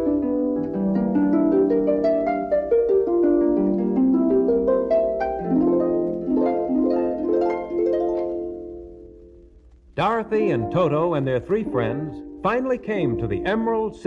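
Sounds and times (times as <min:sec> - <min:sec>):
orchestral music with harp runs: 0:10.2 - 0:14.0.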